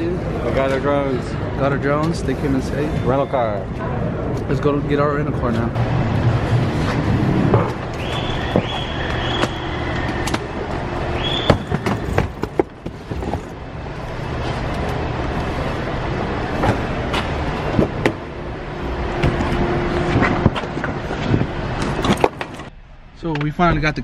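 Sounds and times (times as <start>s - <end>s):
steady low hum: 0.0s - 24.0s
luggage knocks and clicks: 11.3s - 13.6s.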